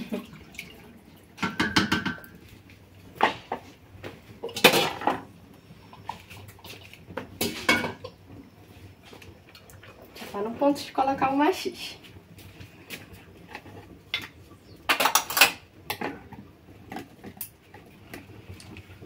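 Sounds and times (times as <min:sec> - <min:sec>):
pots and utensils clattering: 0:01.4 - 0:02.5, 0:04.4 - 0:08.2, 0:13.0 - 0:18.3.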